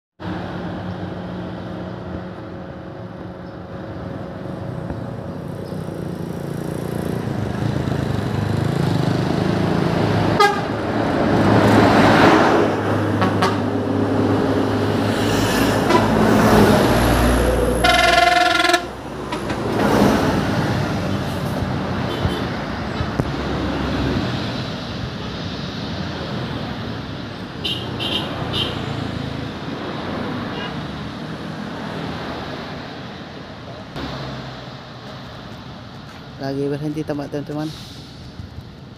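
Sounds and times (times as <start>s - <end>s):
traffic passing close by: 0.2s - 38.9s
vehicle horn: 10.4s - 10.8s, 13.2s - 13.7s, 15.8s - 16.2s, 17.8s - 19.6s, 22.1s - 22.5s, 27.6s - 28.8s.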